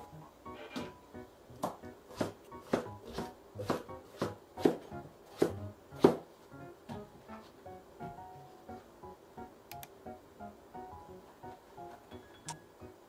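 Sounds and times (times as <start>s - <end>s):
knife chopping on cutting board: 1.6s - 6.2s.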